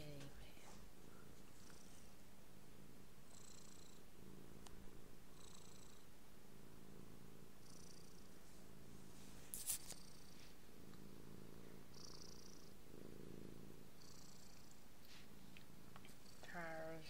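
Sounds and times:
soft breathy hiss: 0.0 - 2.3, 3.3 - 17.0
cat purring: 0.0 - 17.0
brief rustle: 9.4 - 10.0.

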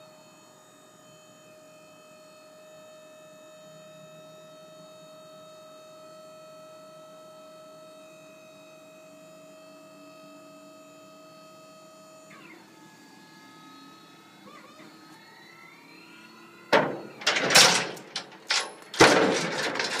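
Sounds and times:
hydraulic pump whining: 16.7 - 20.0
metal platform clanking: 16.8 - 20.0
chain rattling: 17.1 - 20.0.

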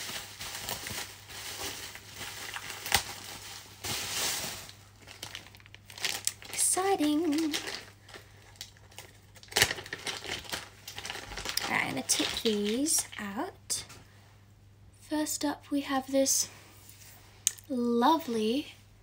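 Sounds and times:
packaging crinkling and rustling: 0.0 - 13.4.

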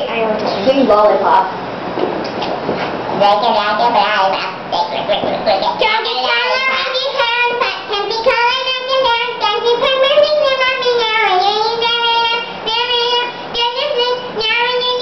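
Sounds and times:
girl singing with helium voice: 3.3 - 15.0.

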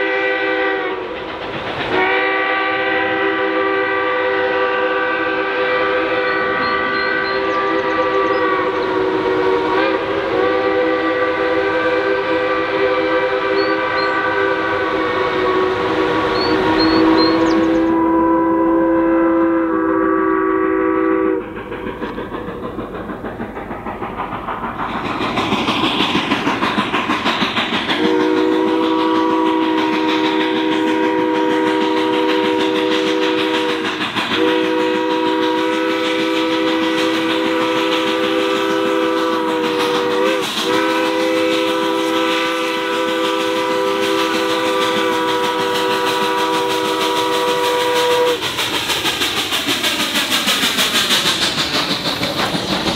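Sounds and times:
steam whistle chord: 0.0 - 1.1, 1.9 - 21.6, 28.0 - 48.4
locomotive exhaust beat: 0.0 - 52.9
rolling train: 0.0 - 52.9.

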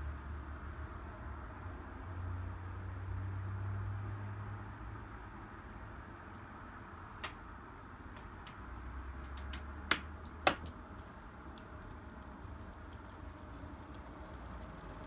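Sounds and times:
sharp clicks on track: 7.2 - 7.4, 9.2 - 11.8.

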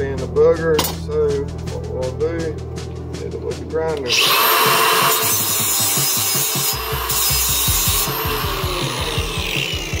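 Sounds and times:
angle grinder grinding metal: 4.0 - 10.0.

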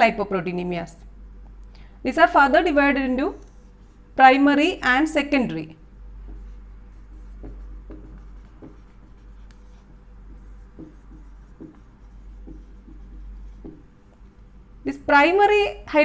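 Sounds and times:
steady low hum: 0.0 - 16.0
marker pen writing on board: 6.2 - 14.4.

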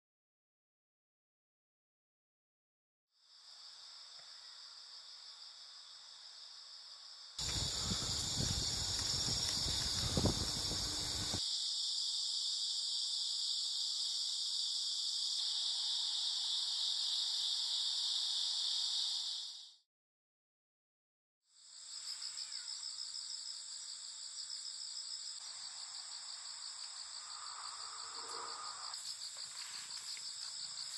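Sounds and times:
insects trilling: 3.2 - 19.7, 21.6 - 30.9.

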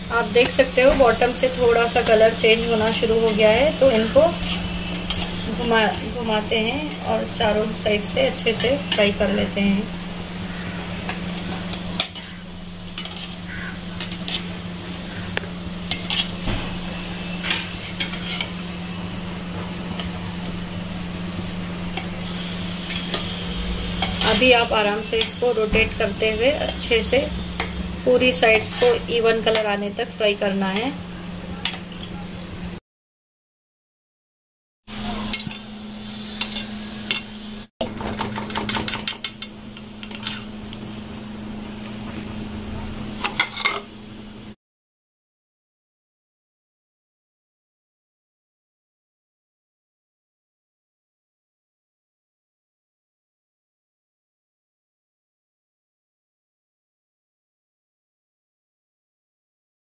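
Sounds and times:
low hum: 0.0 - 31.4
dough sizzling in hot oil: 0.0 - 32.0, 34.9 - 44.6
metal skimmer scraping pot: 1.2 - 9.3, 10.5 - 18.6, 22.8 - 29.8, 35.0 - 40.6.

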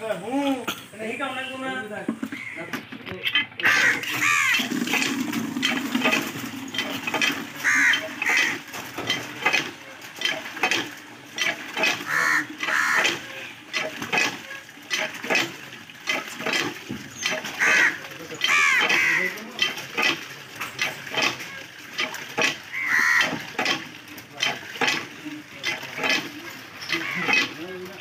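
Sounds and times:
crows cawing: 2.3 - 2.8, 3.6 - 4.7, 7.6 - 8.6, 12.0 - 13.2, 17.6 - 19.4, 22.7 - 23.4, 26.9 - 27.4.

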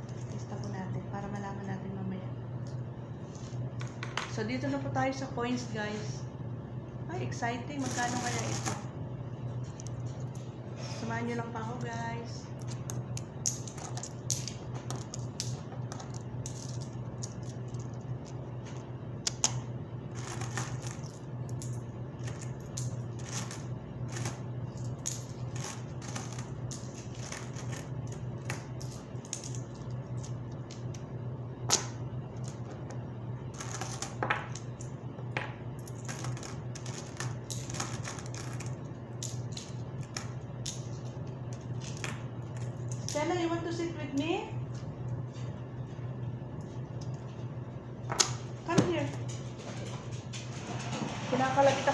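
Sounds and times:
steady low hum: 0.0 - 51.9
coins clinking: 7.8 - 8.9, 13.4 - 18.0, 20.1 - 30.4, 33.5 - 34.6, 35.8 - 40.8.

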